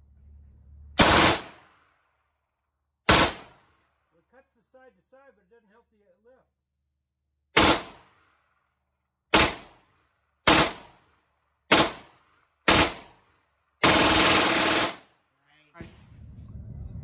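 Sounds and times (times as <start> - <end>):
submachine gun shots: 1.0 - 1.7, 3.1 - 3.6, 7.6 - 8.1, 9.3 - 9.8, 10.4 - 11.0, 11.7 - 12.1, 12.7 - 13.2, 13.8 - 15.1.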